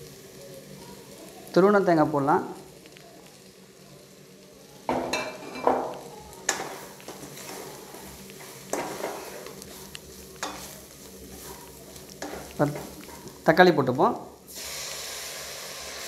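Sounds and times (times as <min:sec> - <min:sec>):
light steady sizzle: 0:00.0 - 0:16.0
wooden spatula scraping pan: 0:06.5 - 0:13.4.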